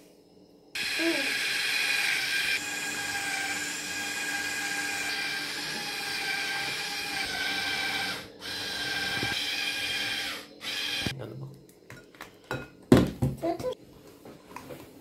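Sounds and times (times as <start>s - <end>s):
electric hand mixer whining: 0.8s - 11.1s.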